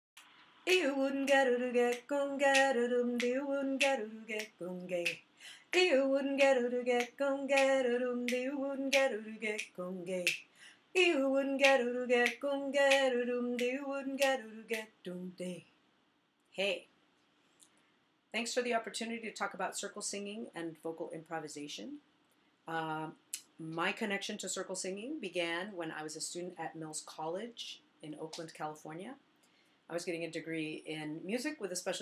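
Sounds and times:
woman singing wordlessly: 0:00.7 - 0:15.7.

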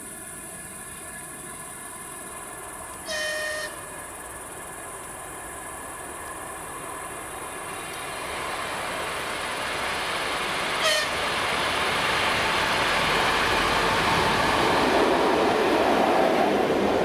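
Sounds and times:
train on rails: 0:00.0 - 0:17.0
train horn blast: 0:03.0 - 0:03.9, 0:10.8 - 0:11.2.

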